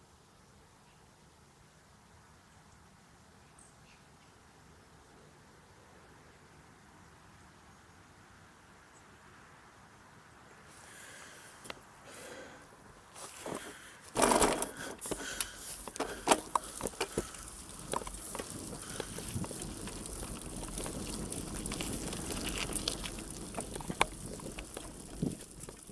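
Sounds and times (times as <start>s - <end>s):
bike rattling over bumps: 13.2s - 25.9s
bike rushing over dirt track: 13.2s - 25.9s.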